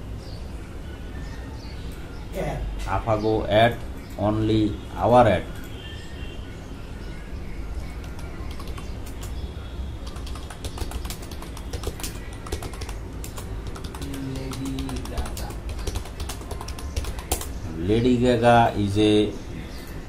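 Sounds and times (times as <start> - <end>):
music: 0.0 - 2.8
keyboard typing clicks: 7.8 - 9.4, 10.0 - 17.6.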